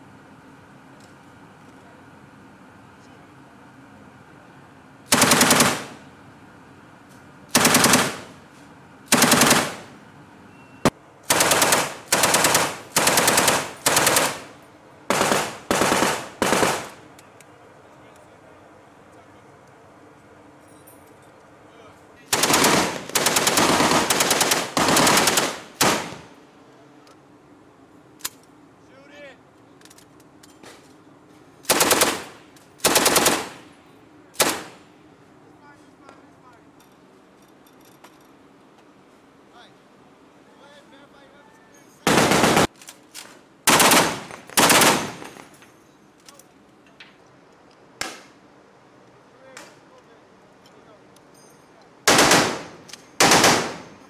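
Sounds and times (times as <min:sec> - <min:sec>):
machine gun bursts: 0:05.1 - 0:06.0, 0:07.5 - 0:08.3, 0:09.1 - 0:09.9, 0:11.3 - 0:14.5, 0:15.1 - 0:17.0, 0:22.3 - 0:26.2, 0:31.7 - 0:33.6, 0:42.1 - 0:42.8, 0:43.7 - 0:45.4, 0:52.1 - 0:54.0.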